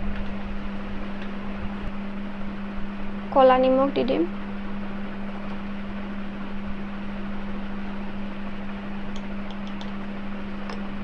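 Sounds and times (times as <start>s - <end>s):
appliance humming with hiss: 0.0s - 11.0s.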